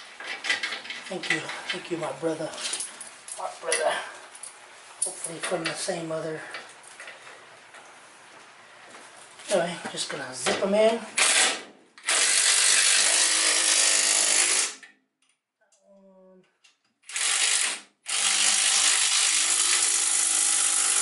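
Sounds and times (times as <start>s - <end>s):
impact wrench spinning nuts: 11.2s - 14.8s, 17.1s - 21.0s.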